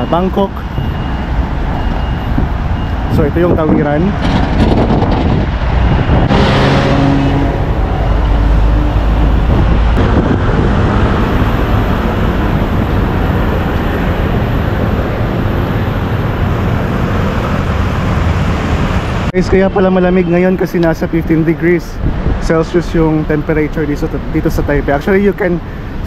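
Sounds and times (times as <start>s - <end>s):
bus engine passing: 0.0s - 19.8s
rumble of road traffic: 0.0s - 26.0s.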